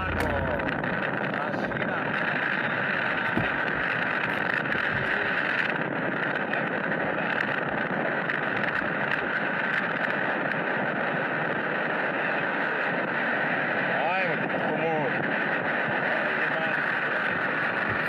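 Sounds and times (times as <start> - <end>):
vehicle running noise: 0.0 - 7.6
wind rushing on microphone: 0.0 - 18.0.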